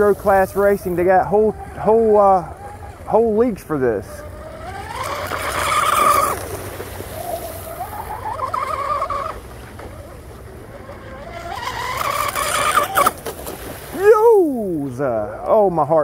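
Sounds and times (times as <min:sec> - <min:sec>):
electric motor whining: 0:00.6 - 0:13.2.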